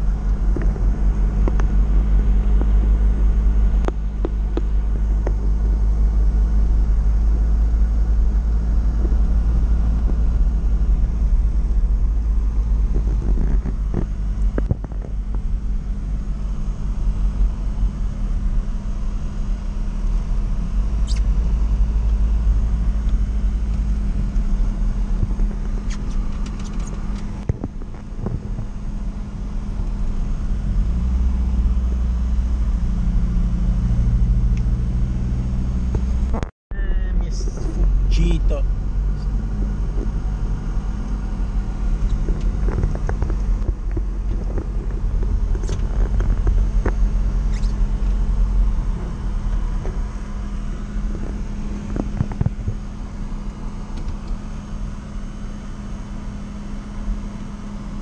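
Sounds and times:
van engine droning: 0:00.0 - 0:58.0.

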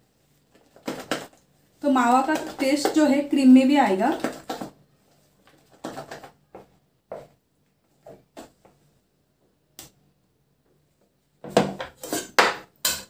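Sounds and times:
spatula scraping plastic bowl: 0:00.5 - 0:03.3, 0:03.9 - 0:04.8, 0:11.8 - 0:13.0
bowl and spatula clattering: 0:11.6 - 0:13.0.

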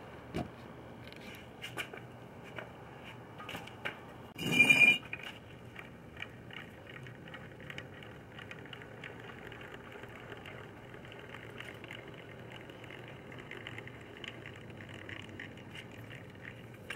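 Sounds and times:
car body ticks and rattles: 0:05.1 - 0:16.9.

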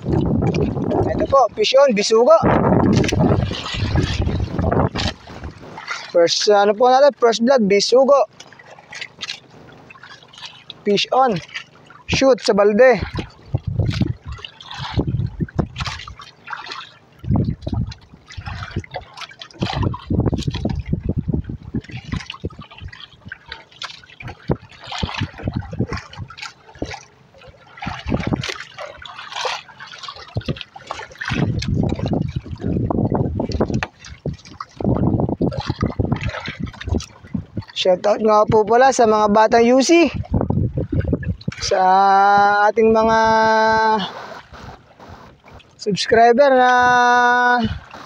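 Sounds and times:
low rumble: 0:00.0 - 0:01.7, 0:02.3 - 0:05.8, 0:14.9 - 0:16.1, 0:17.2 - 0:18.9
water slapping boat hull: 0:00.0 - 0:48.0.

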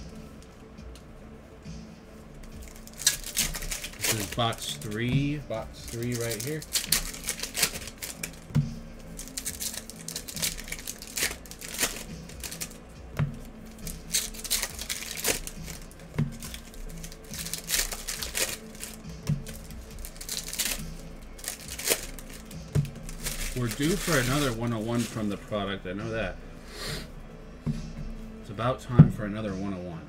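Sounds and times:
plastic wrapping crinkling and tearing: 0:02.3 - 0:25.6.

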